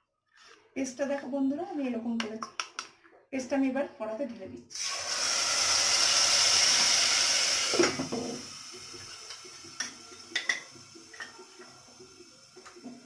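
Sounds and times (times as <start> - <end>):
paste sizzling in hot oil: 4.8 - 12.4.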